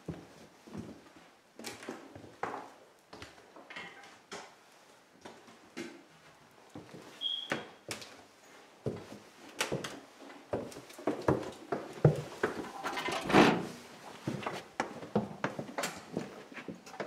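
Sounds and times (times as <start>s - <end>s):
brief high squeak: 7.2s - 7.6s.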